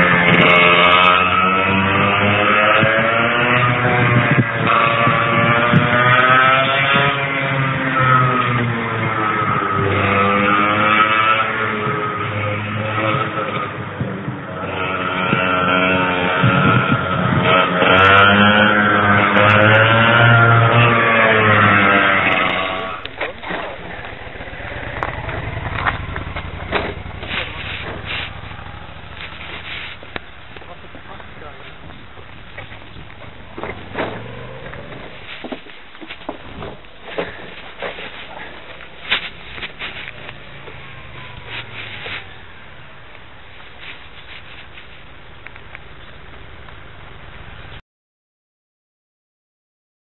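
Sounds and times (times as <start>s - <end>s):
kart engine passing by: 0.0s - 44.9s
low pulsing engine rumble: 22.3s - 35.3s
sharp clicks and knocks: 25.0s - 28.5s
handling clicks and knocks: 25.0s - 40.8s.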